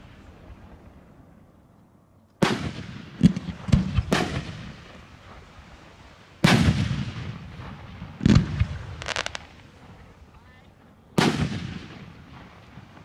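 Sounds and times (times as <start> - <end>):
firework bangs echoing: 2.4 - 9.8, 11.2 - 13.0.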